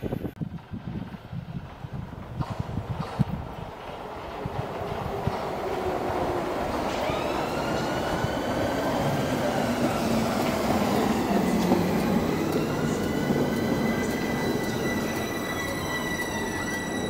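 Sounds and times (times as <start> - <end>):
train wheels rumbling on rail: 0.0 - 17.0
train motor whine: 4.5 - 17.0.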